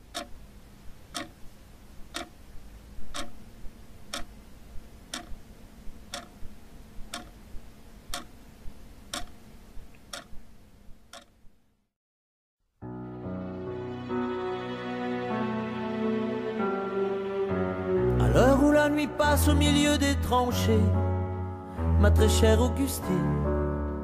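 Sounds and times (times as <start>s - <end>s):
clock ticking: 0.0s - 0.4s, 1.0s - 2.4s, 3.0s - 3.4s, 4.1s - 4.4s, 5.1s - 7.5s, 8.1s - 8.4s, 9.1s - 9.4s, 10.0s - 10.4s, 11.1s - 11.4s.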